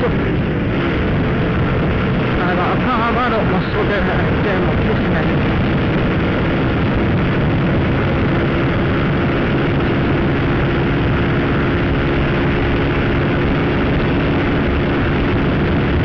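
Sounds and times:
motorcycle engine running: 0:00.0 - 0:16.0
wind noise: 0:00.0 - 0:16.0.

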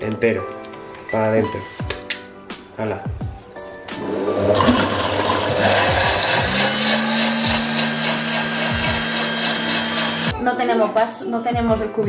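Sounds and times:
liquid churning and splashing: 0:04.0 - 0:10.3
motor hum: 0:04.0 - 0:10.3.

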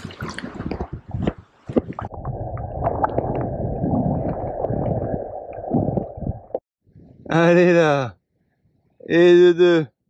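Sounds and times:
muffled underwater river rumble: 0:00.4 - 0:07.3.

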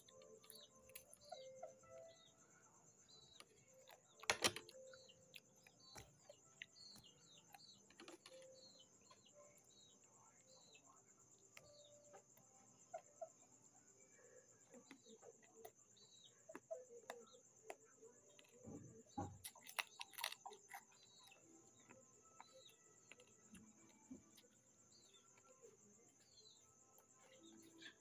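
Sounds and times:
crunching of crispy food: 0:00.0 - 0:01.4, 0:16.5 - 0:26.3
faint insect trill: 0:00.0 - 0:28.0
short insect chirps: 0:00.0 - 0:28.0.

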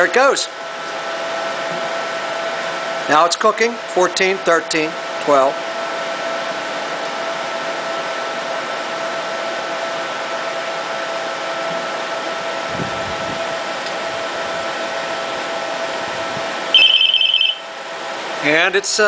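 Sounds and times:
oven fan blowing air: 0:00.0 - 0:19.0
oven hum: 0:00.0 - 0:19.0
high electronic beep: 0:16.7 - 0:17.6.

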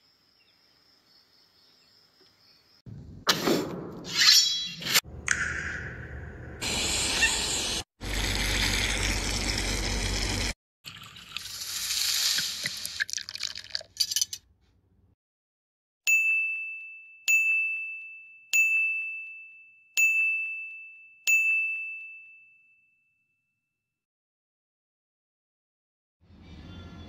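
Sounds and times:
bell-like dings: 0:16.1 - 0:23.6.

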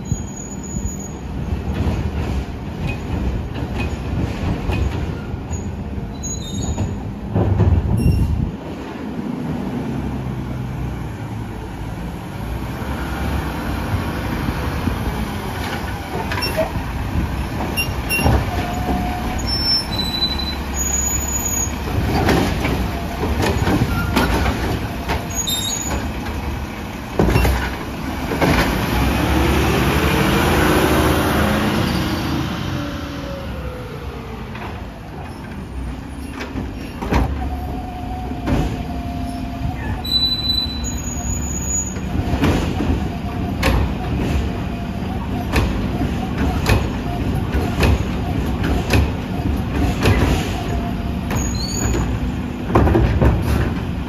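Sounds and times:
garbage truck engine revving: 0:27.6 - 0:34.8.

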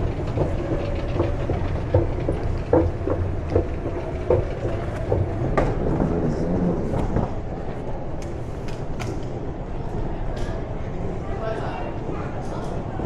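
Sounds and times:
train clicks and knocks: 0:00.0 - 0:09.4
train rumbling: 0:00.0 - 0:13.0.

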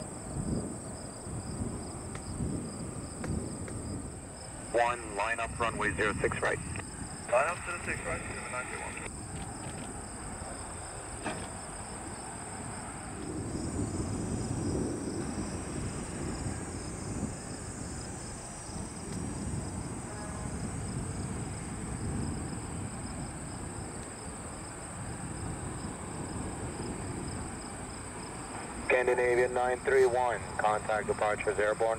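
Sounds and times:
crickets trilling: 0:00.0 - 0:31.9
low uneven rumble: 0:04.6 - 0:09.1.

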